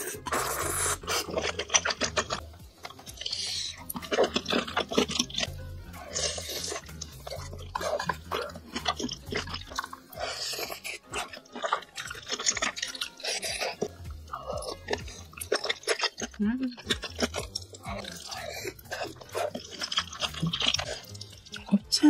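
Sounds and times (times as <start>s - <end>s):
mouth smacks and clicks: 0.0s - 21.8s
wet chewing and mouth sounds: 0.0s - 22.0s.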